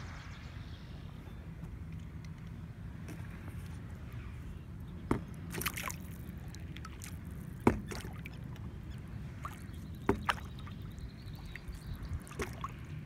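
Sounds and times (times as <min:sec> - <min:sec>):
low steady rumble: 0:00.0 - 0:13.0
paddle splashing in water: 0:05.4 - 0:08.7, 0:09.3 - 0:12.9.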